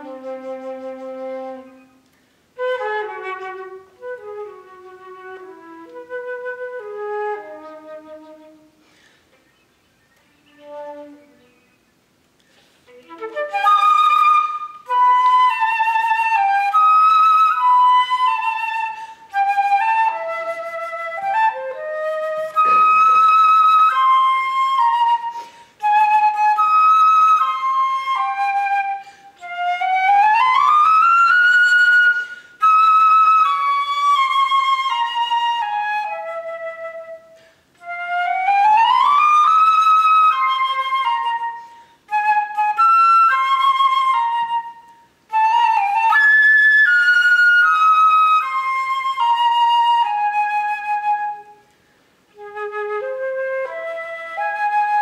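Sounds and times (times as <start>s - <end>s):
solo flute playing: 0.0s - 12.0s, 12.6s - 55.0s
flautist breathing: 0.2s - 2.6s, 8.6s - 9.5s, 12.4s - 13.1s, 18.9s - 19.4s, 25.2s - 25.9s, 28.8s - 29.5s, 32.0s - 32.7s, 37.2s - 37.8s, 41.4s - 42.1s, 51.6s - 52.4s.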